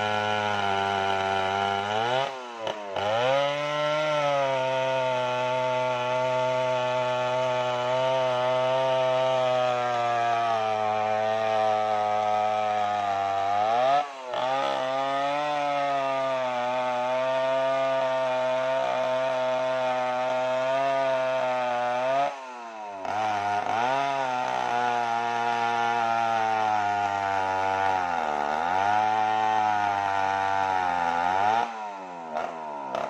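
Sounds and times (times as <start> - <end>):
chainsaw cutting log: 0.0 - 33.0.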